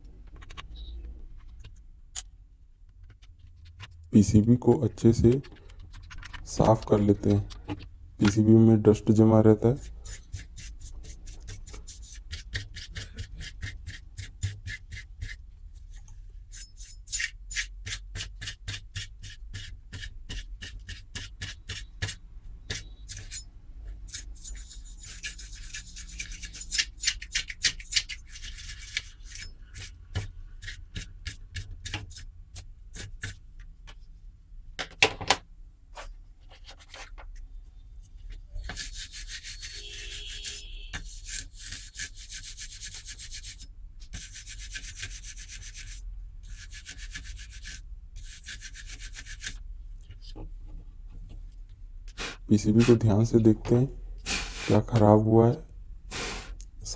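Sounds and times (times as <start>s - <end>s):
paintbrush scrubbing circuit board: 9.0s - 32.3s, 38.6s - 49.6s.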